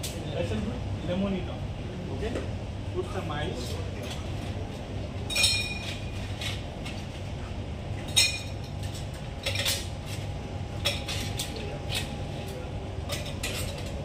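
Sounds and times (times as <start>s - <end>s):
steady low hum: 0.0s - 14.0s
glassware and bar tools clinking: 5.3s - 6.6s, 8.0s - 9.9s, 13.0s - 14.0s.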